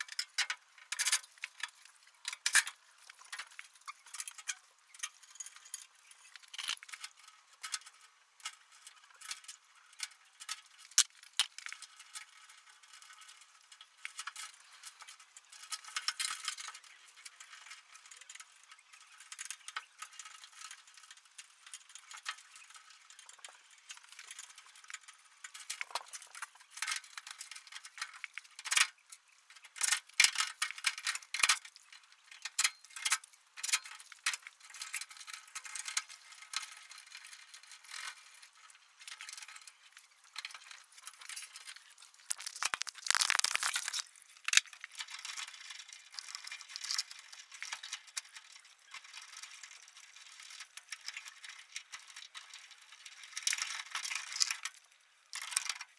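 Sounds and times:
clicks and rattles of wiring: 0.0 - 55.9
rustling scrape: 41.4 - 44.4.

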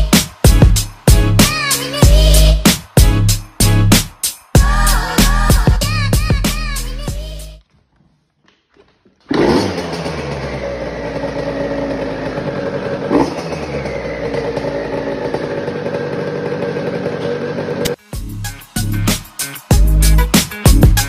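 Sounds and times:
small two-stroke engine idling: 9.3 - 18.0.

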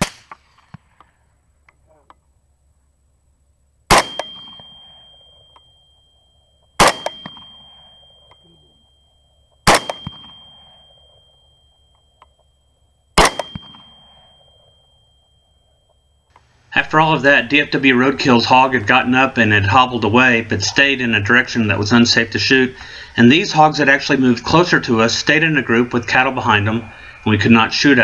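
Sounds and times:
rifle shots with rolling echo: 0.0 - 1.6, 3.9 - 5.6, 6.8 - 8.3, 9.6 - 11.4, 13.2 - 15.0.

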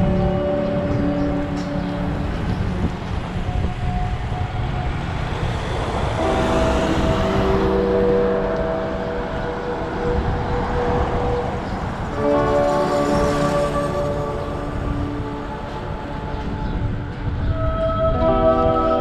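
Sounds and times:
background music of held notes: 0.0 - 19.0
wind and road noise: 0.0 - 19.0.

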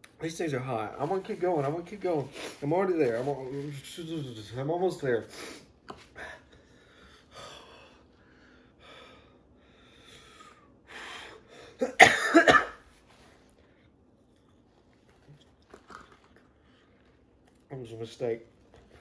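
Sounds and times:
man breathing hard: 5.3 - 11.8
man coughing: 11.8 - 12.8.

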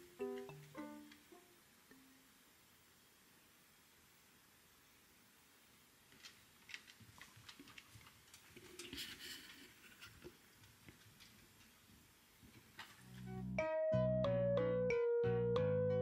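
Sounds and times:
dog claws on wooden floor: 6.1 - 11.8.

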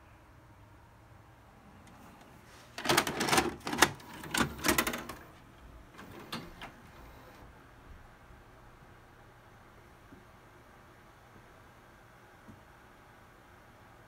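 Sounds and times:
cassette clattering into player: 2.8 - 5.2.

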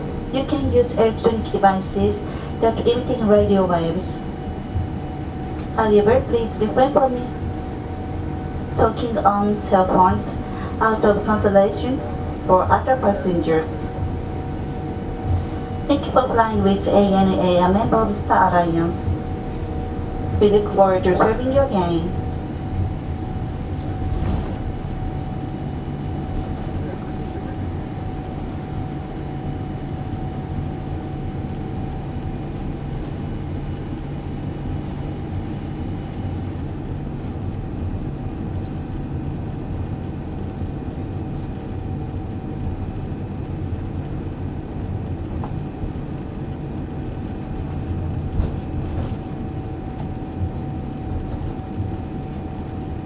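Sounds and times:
thin steady hum: 0.0 - 36.9
aircraft cabin low rumble: 0.0 - 53.0.

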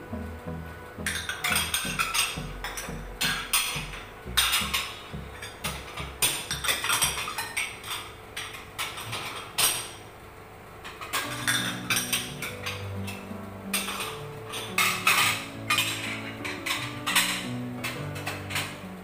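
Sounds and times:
low background music: 0.0 - 7.4, 11.2 - 19.0
plates clinking in a dish rack: 1.0 - 10.0, 10.9 - 18.9.

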